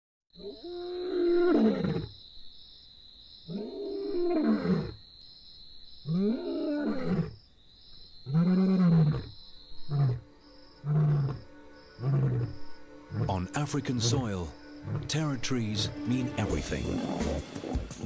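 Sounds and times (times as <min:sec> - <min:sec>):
lion roaring: 0:06.1 - 0:07.4, 0:08.3 - 0:10.2, 0:10.8 - 0:13.4, 0:14.8 - 0:15.1, 0:16.6 - 0:18.0
lion grunt: 0:16.6 - 0:18.0.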